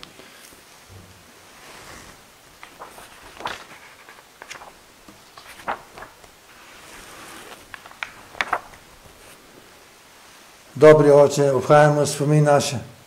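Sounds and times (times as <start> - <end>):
faint room hiss: 0.0 - 13.0
cloth rustling: 0.3 - 10.5.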